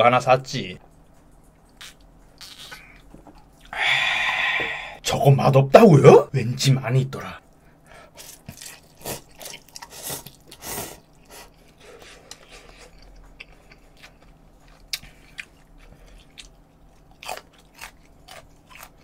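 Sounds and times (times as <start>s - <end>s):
chewing: 8.2s - 19.0s.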